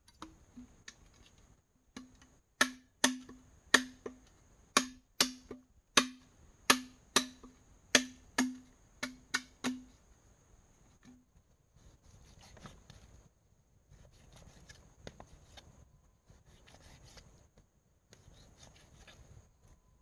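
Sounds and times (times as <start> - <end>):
blade chopping wood: 2.0 - 4.2, 4.8 - 9.9.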